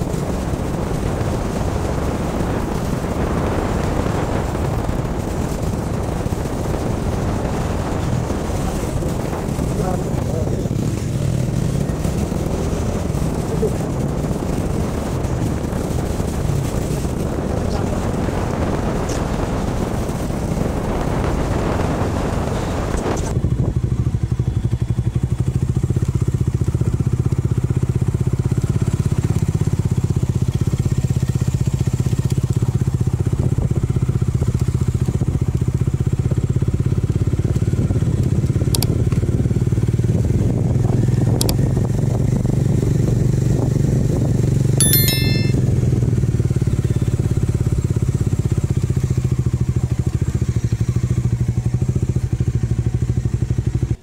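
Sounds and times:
wind rushing over microphone: 0:00.0 - 0:23.7
motorcycle engine running: 0:00.0 - 0:36.2.

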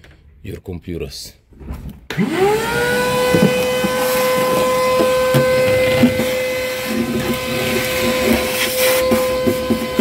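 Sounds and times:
vacuum cleaner whine: 0:02.1 - 0:10.0.

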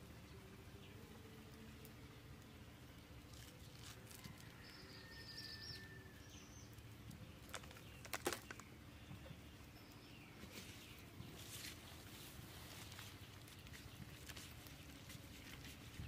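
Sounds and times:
faint bird chirp: 0:00.0 - 0:16.0.

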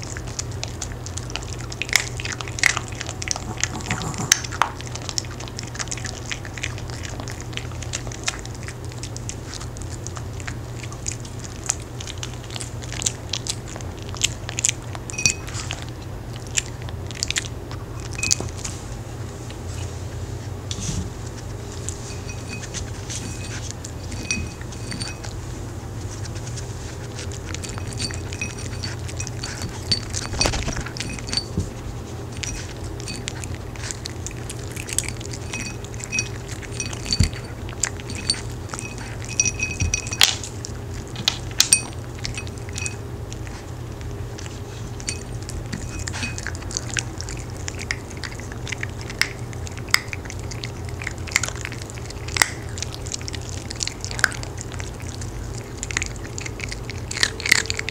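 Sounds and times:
dogs eating crunchy cookies: 0:00.0 - 0:57.9
clinks against a ceramic plate: 0:22.1 - 0:25.3, 0:27.6 - 0:31.7, 0:35.0 - 0:40.4, 0:41.6 - 0:43.0.

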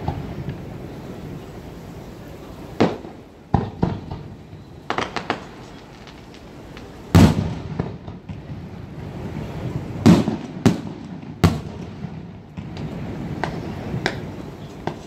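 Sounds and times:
firework shells bursting: 0:02.8 - 0:08.5.

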